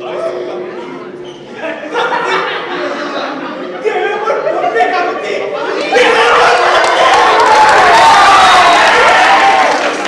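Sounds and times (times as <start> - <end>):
audience cheering and clapping: 5.7 - 10.0.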